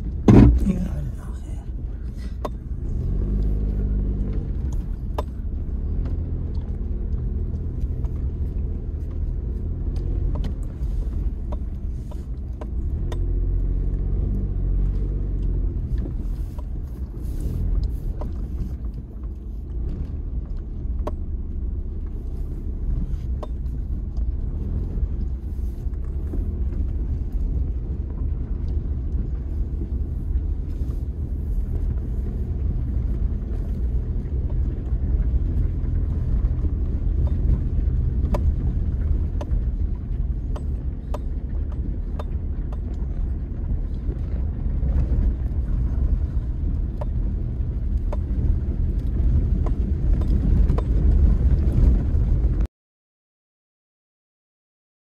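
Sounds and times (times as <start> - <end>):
car rumbling over dirt road: 0.0 - 52.7
sharp ticks and knocks: 4.3 - 14.0, 23.3 - 24.8, 34.3 - 44.2, 46.8 - 51.9.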